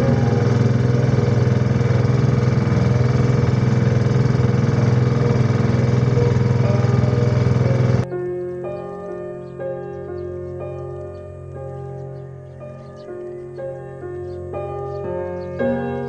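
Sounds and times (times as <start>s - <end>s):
boat engine droning: 0.0s - 8.1s.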